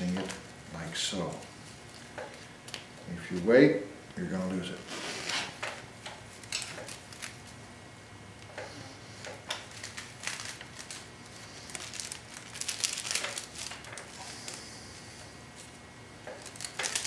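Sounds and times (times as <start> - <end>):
broom corn rustling and crackling: 8.8 - 17.0.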